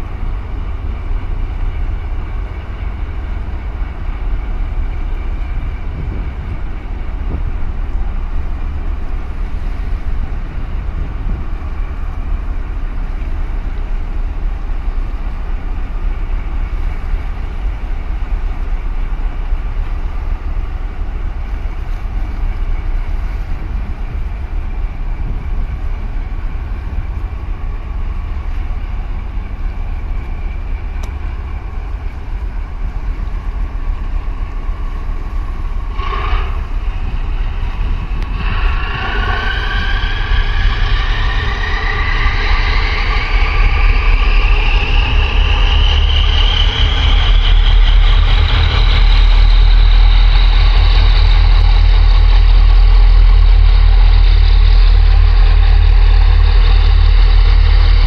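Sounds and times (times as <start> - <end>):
diesel engine rumble: 0.0 - 58.0
engine whine rising in pitch: 34.8 - 58.0.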